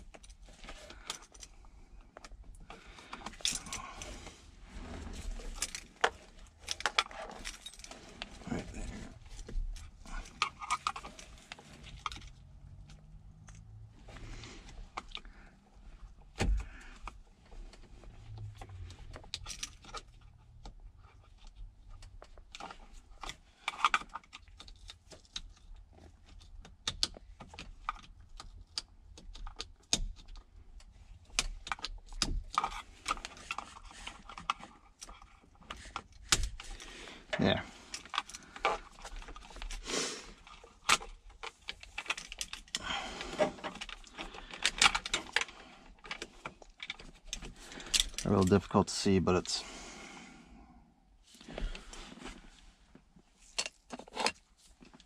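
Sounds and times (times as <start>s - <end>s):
plastic clicks and rattles: 43.4s - 48.6s.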